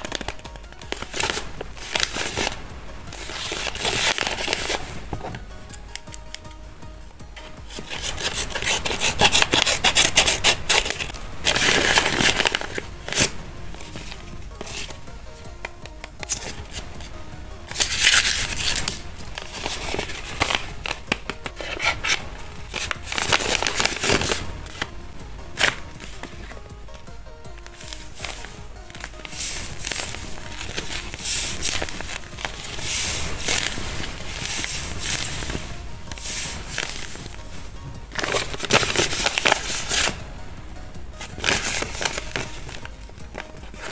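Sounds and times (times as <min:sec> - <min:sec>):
scissors cutting paper: 0:00.0 - 0:02.6, 0:03.2 - 0:06.4, 0:07.4 - 0:15.0, 0:15.6 - 0:17.1, 0:17.7 - 0:24.9, 0:25.6 - 0:26.7, 0:27.5 - 0:37.4, 0:38.1 - 0:40.2, 0:41.2 - 0:43.9
paper rustling and crinkling: 0:00.0 - 0:06.4, 0:07.4 - 0:24.9, 0:25.5 - 0:40.2, 0:41.2 - 0:43.9
sharp paper crackle: 0:00.0 - 0:06.4, 0:07.4 - 0:17.1, 0:17.7 - 0:24.9, 0:25.5 - 0:40.2, 0:41.2 - 0:43.9.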